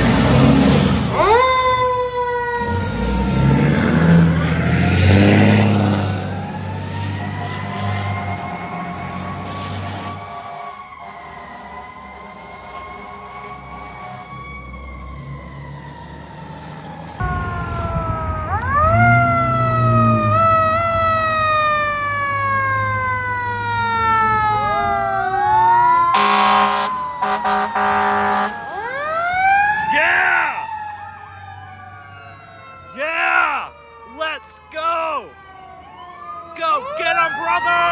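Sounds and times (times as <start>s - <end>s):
fire truck sirens wailing: 0.0s - 37.9s
short horn blasts: 26.2s - 28.5s.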